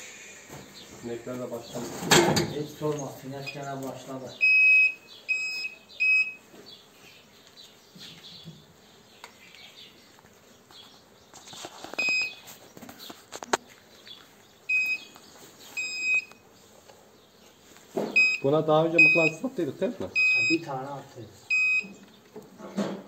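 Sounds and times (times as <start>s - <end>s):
metal detector beeps: 3.4s - 3.6s, 4.4s - 6.4s, 12.0s - 12.4s, 14.7s - 15.1s, 15.8s - 16.4s, 18.2s - 19.4s, 20.2s - 20.6s, 21.5s - 22.0s.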